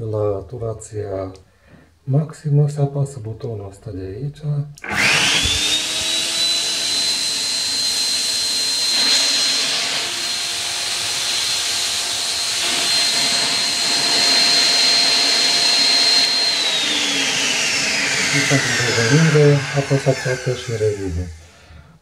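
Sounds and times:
juicer motor whining: 0:04.8 - 0:21.8.

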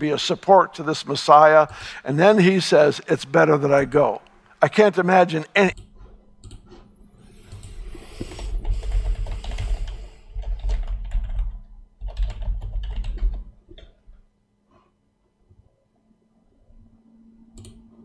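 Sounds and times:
typing on computer keyboard: 0:08.5 - 0:14.0.

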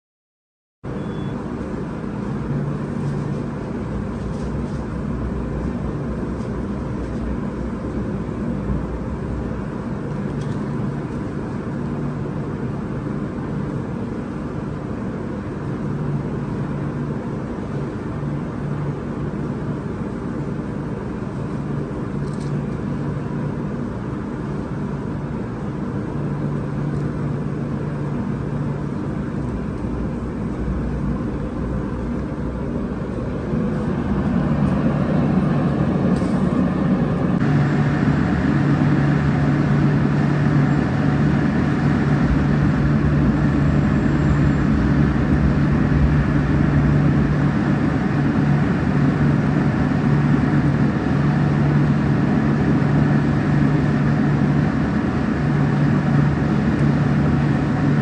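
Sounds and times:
oven fans and blowers droning: 0:00.8 - 0:58.0.

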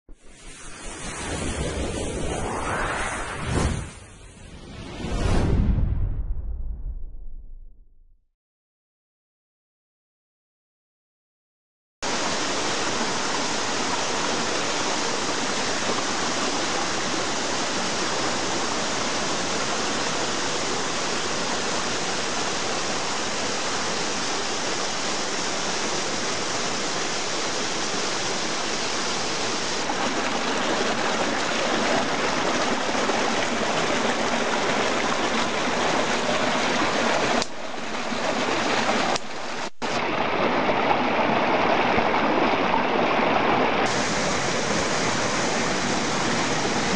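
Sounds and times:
stream rushing over rocks: 0:12.0 - 0:46.9.

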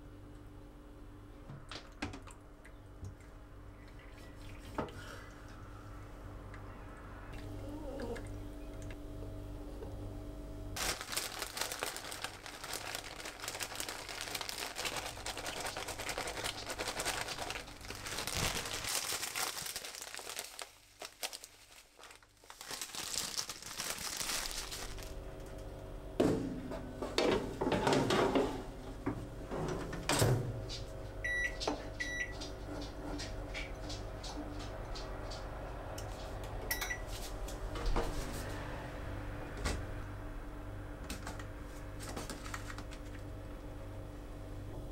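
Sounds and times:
cheese crinkling and rustling: 0:10.8 - 0:25.2, 0:41.3 - 0:43.3
microwave keypad beeps: 0:31.2 - 0:32.4, 0:36.7 - 0:37.1.

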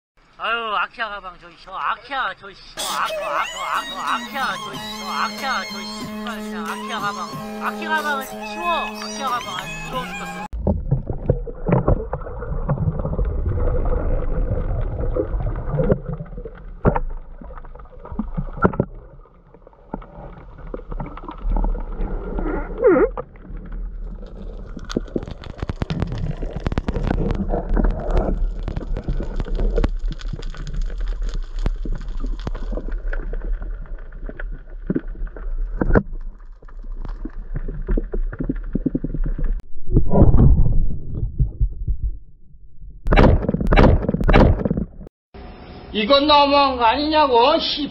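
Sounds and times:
water gurgling: 0:02.8 - 0:41.8
muffled underwater rumble: 0:09.5 - 0:43.1
knocks and clicks: 0:43.0 - 0:45.1.

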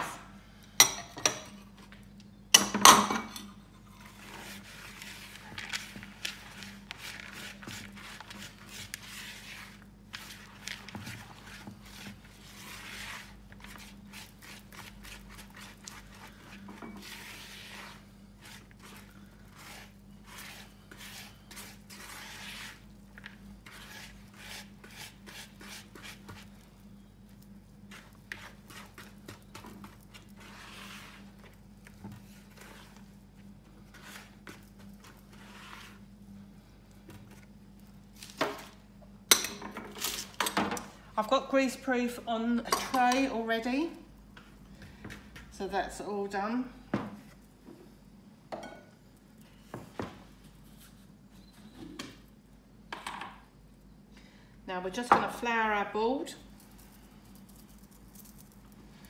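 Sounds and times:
faint steady hum: 0:00.0 - 0:59.0
dough rubbing against plastic bowl: 0:04.0 - 0:36.2.

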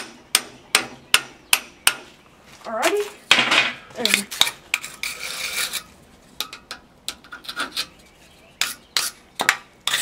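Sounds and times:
wire brush scrubbing metal: 0:04.1 - 0:05.9.

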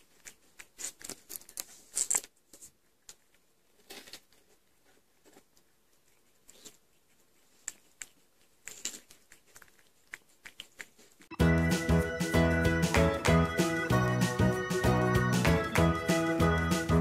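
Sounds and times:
tortoise chewing watermelon: 0:04.0 - 0:11.3.

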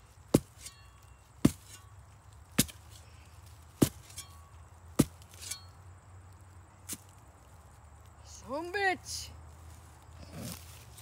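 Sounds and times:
hand tool chopping tree roots: 0:00.0 - 0:05.8.

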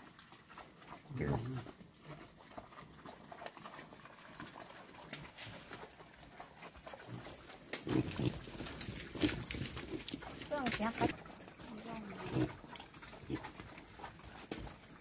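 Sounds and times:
pigs grunting: 0:00.3 - 0:15.0
rustling: 0:03.7 - 0:14.8.

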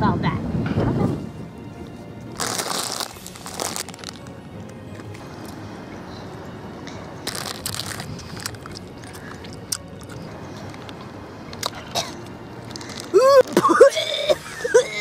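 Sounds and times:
plastic bag crinkling: 0:02.4 - 0:04.4, 0:07.3 - 0:09.3
chewing: 0:07.3 - 0:11.0.

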